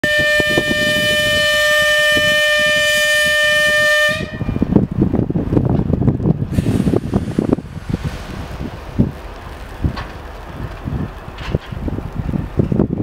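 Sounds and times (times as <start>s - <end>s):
locomotive horn: 0.0s - 4.6s
wind buffeting microphone: 0.0s - 13.0s.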